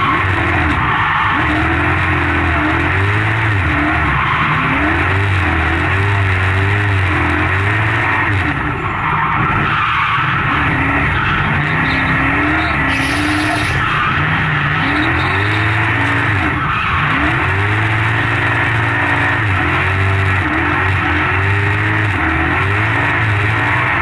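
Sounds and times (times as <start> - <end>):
car engine revving: 0.0 - 24.0
tyres squealing: 8.9 - 17.8.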